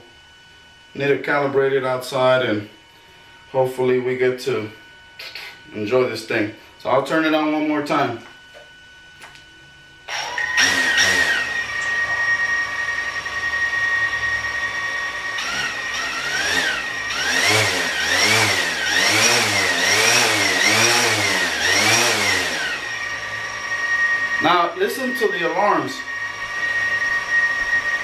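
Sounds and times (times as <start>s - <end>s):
drone propellers whining: 10.1s - 28.0s.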